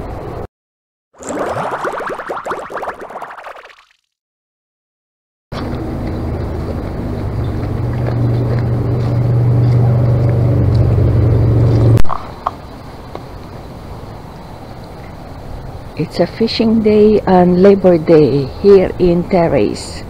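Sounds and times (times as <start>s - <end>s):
outdoor noise: 0.0s - 0.5s, 5.5s - 20.0s.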